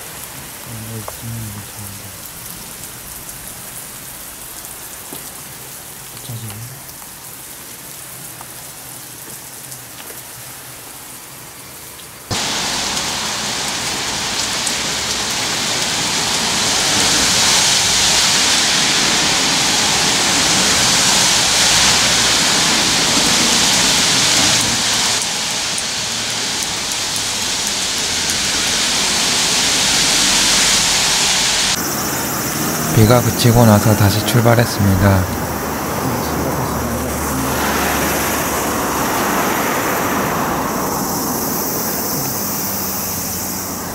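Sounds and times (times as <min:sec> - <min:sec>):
heavy rain pouring: 0:00.0 - 0:43.9.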